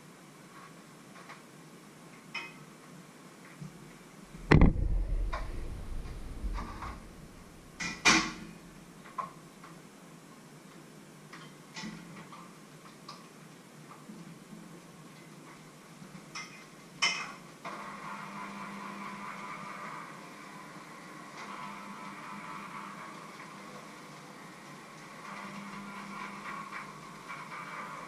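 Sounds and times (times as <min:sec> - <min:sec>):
loud knock rumbling: 0:04.3 - 0:07.8
sharp knock: 0:04.3 - 0:08.3.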